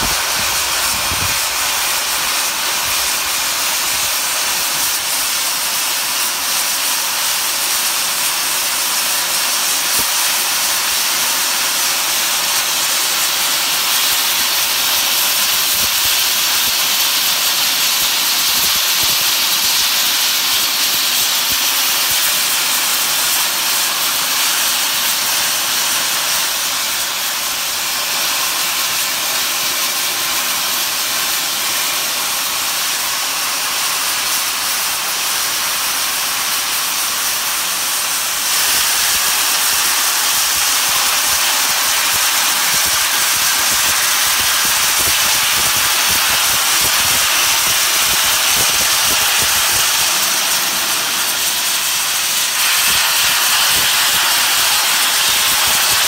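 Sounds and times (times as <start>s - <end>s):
steam locomotive venting steam: 0.0s - 56.0s.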